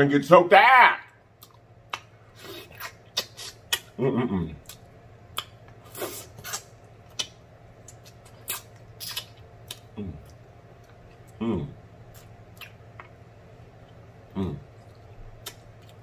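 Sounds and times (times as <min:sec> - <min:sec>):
wet sucking and lip-smacking: 0:01.4 - 0:03.9, 0:04.6 - 0:11.4
sharp mouth clicks: 0:02.8 - 0:03.9, 0:06.4 - 0:09.9
person moaning mm: 0:04.0 - 0:04.7, 0:10.0 - 0:10.2, 0:11.4 - 0:11.8, 0:14.3 - 0:14.6.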